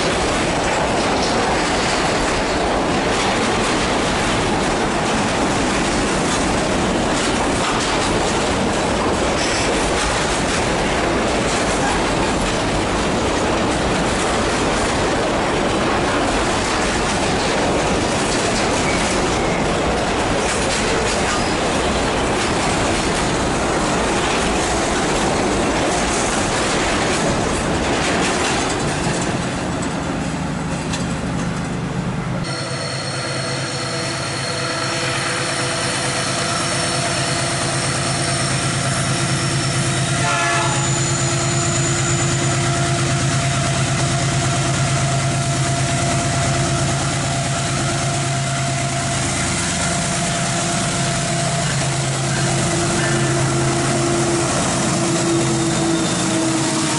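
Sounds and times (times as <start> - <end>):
diesel locomotive engine hum: 0.0 - 56.9.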